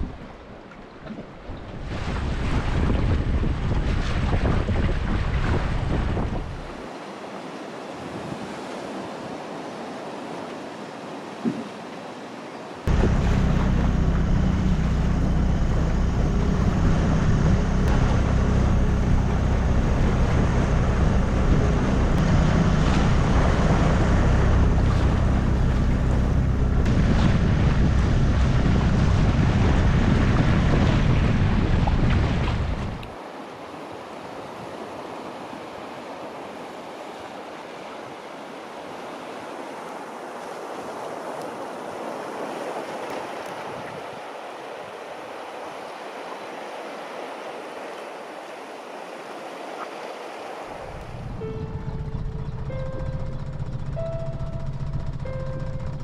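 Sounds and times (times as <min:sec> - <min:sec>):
wind and water wash: 0:00.0 - 0:56.0
water rushing past hull: 0:12.8 - 0:56.0
outboard motor running: 0:12.9 - 0:33.1, 0:50.6 - 0:56.0.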